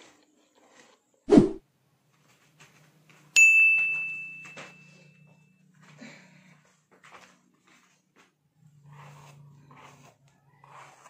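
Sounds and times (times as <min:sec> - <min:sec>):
low whoosh: 0:01.3 - 0:01.6
bright ding: 0:03.4 - 0:05.6.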